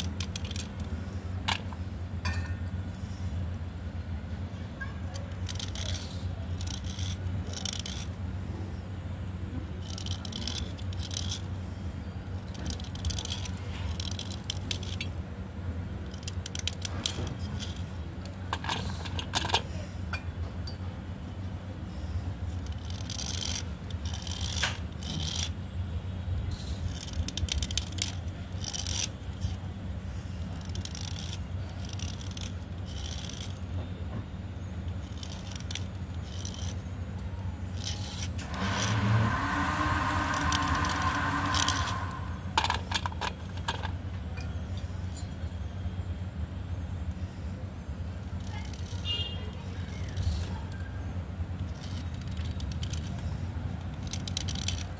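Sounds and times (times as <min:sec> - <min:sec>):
steady low hum: 0:00.0 - 0:54.9
blade scraping slate pencil: 0:05.1 - 0:08.2, 0:37.8 - 0:43.0.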